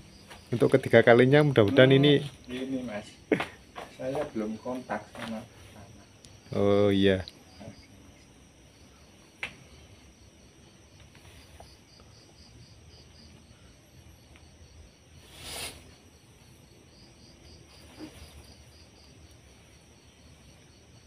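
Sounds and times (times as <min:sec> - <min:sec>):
faint crickets chirping: 0:00.0 - 0:21.0.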